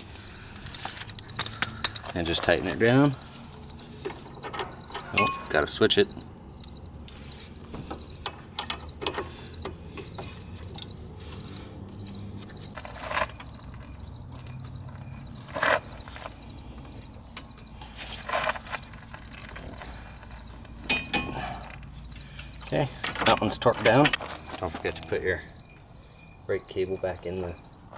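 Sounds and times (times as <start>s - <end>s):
steady high chirp: 0.0s - 27.9s
sharp metal clicks and knocks: 7.9s - 11.0s, 18.6s - 25.0s.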